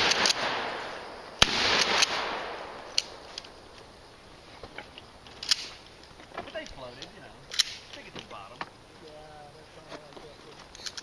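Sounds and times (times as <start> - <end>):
gunshots with echo: 0.0 - 2.9
sharp quiet crack: 0.0 - 3.9, 4.8 - 5.8, 7.5 - 8.1.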